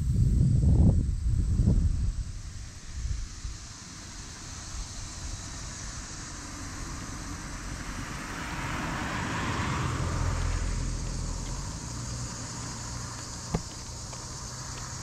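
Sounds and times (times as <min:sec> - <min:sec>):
car driving past: 0:05.4 - 0:15.0.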